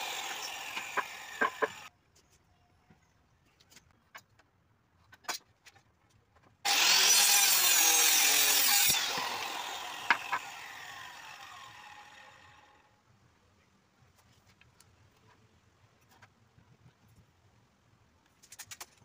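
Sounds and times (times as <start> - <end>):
circular saw cutting wood: 0.0 - 1.9, 6.7 - 12.8.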